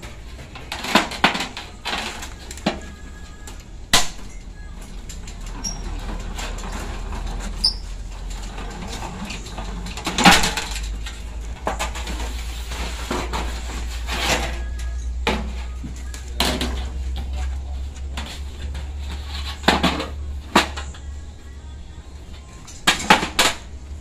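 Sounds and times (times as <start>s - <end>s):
sheet metal rattling in slip-roll: 5.1s - 15.5s.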